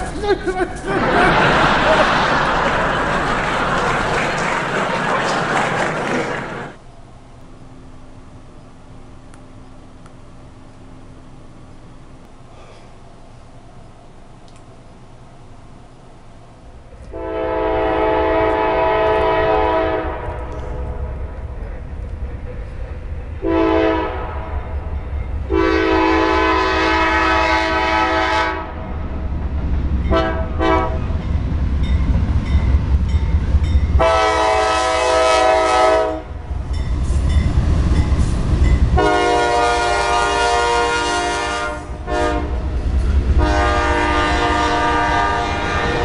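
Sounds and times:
train rumbling with rail clatter: 0:00.0 - 0:46.0
train horn blasts: 0:17.1 - 0:21.2, 0:23.4 - 0:28.9, 0:30.0 - 0:31.2, 0:33.9 - 0:36.5, 0:38.9 - 0:42.7, 0:43.3 - 0:46.0.

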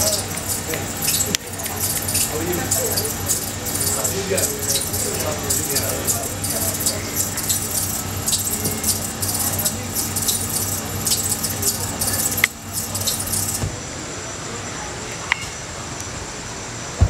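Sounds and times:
crackling electronic noise: 0:00.0 - 0:13.6
faint steady high tones: 0:00.0 - 0:13.6
small clicks: 0:00.0 - 0:13.6.

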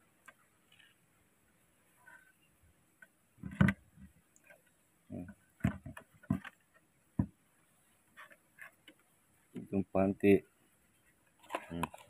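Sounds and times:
soft knocks and thumps: 0:03.4 - 0:04.2, 0:05.1 - 0:07.5
plastic bottle knocking on wooden boards: 0:05.6 - 0:06.6, 0:07.2 - 0:07.4.

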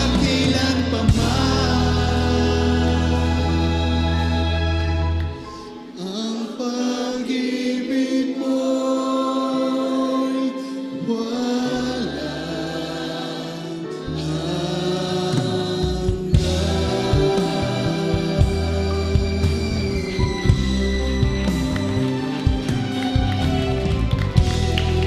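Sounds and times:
man singing: 0:00.0 - 0:05.1, 0:08.5 - 0:13.2, 0:13.8 - 0:20.5
band accompaniment with bass: 0:00.0 - 0:06.0, 0:11.1 - 0:25.0
choir singing: 0:00.0 - 0:23.1.

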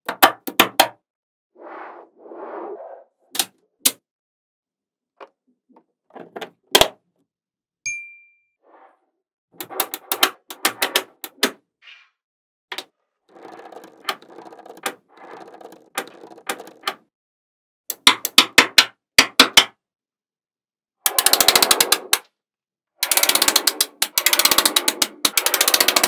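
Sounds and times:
balls rattling: 0:13.3 - 0:16.9
rapid clattering of balls: 0:13.3 - 0:17.0.

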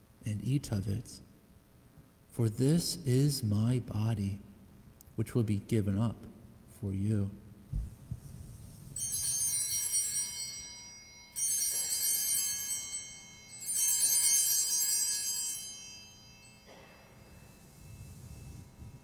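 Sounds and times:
cluster of small bells jangling: 0:09.0 - 0:19.0.

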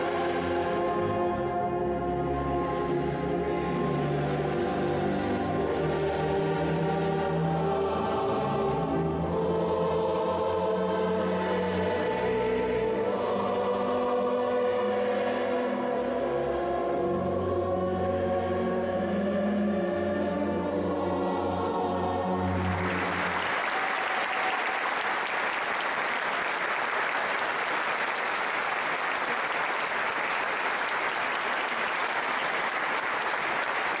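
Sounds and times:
choir and orchestra holding a chord: 0:00.0 - 0:25.1
audience applause: 0:22.4 - 0:34.0.

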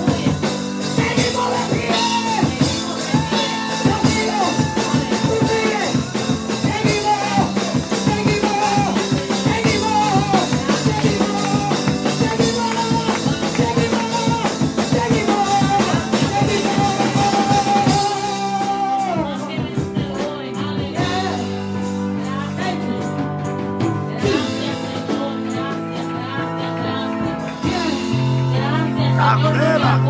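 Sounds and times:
drum beat: 0:00.0 - 0:21.6
keyboard chords: 0:00.0 - 0:30.0
person singing: 0:00.0 - 0:30.0.

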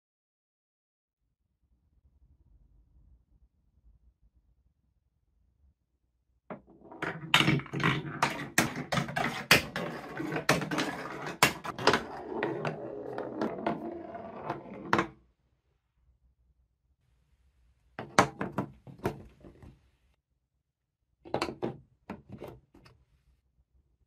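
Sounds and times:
ball rolling on marble run: 0:06.5 - 0:15.2.

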